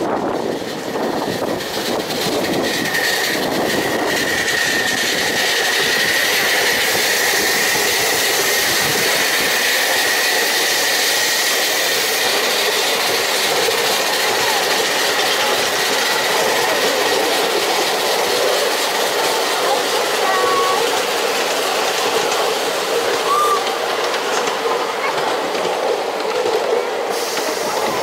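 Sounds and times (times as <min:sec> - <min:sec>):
train wheels rolling on rails: 0:00.0 - 0:28.0.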